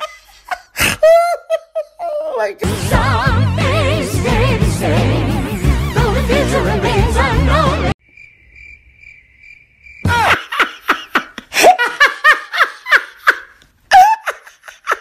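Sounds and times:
person laughing high-pitched: 0.0s - 2.5s, 10.1s - 15.0s
music: 2.6s - 8.0s.

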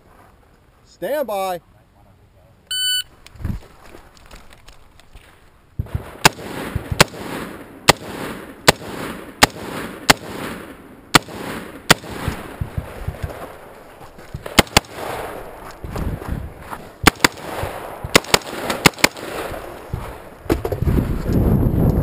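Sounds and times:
rifle shots with echo: 5.8s - 13.7s, 14.4s - 15.6s, 17.0s - 20.3s.

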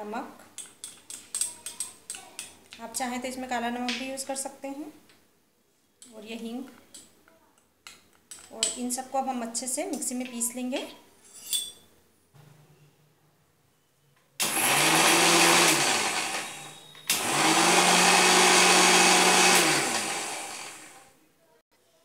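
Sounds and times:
mixer grinder whining: 14.4s - 21.0s.

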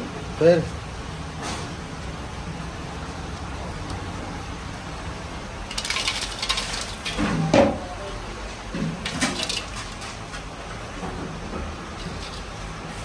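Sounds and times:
steady low hum: 0.0s - 7.1s.

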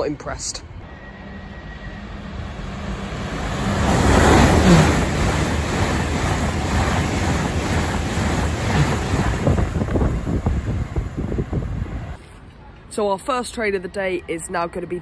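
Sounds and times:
train passing at speed: 0.6s - 12.2s
wind buffeting microphone: 3.1s - 12.2s.

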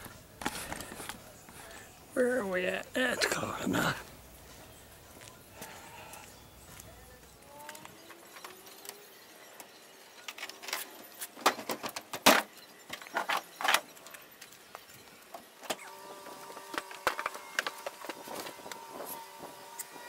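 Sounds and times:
faint steady hum: 0.0s - 11.0s
knocks clatters and creaks of cover: 10.3s - 14.2s.

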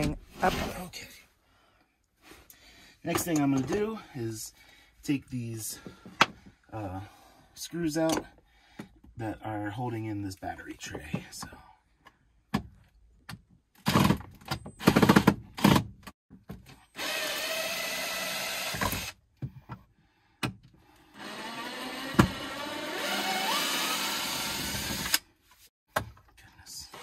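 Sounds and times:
cordless drill motor: 17.0s - 19.2s, 21.0s - 25.2s.

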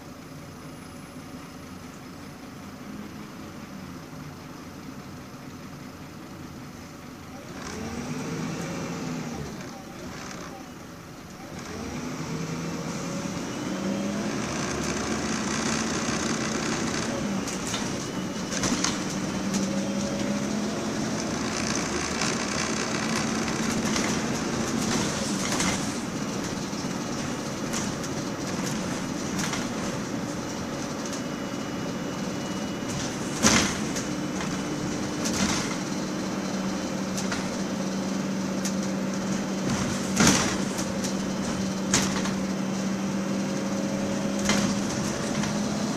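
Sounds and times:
bus engine humming: 0.0s - 45.9s
bus body knocks and rattles: 17.5s - 20.4s, 21.5s - 31.3s, 32.9s - 36.2s, 36.9s - 37.8s, 38.7s - 42.6s, 44.2s - 45.9s.

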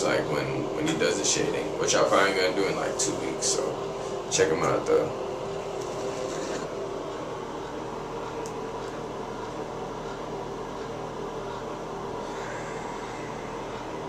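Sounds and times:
background hum and hiss: 0.0s - 14.0s.

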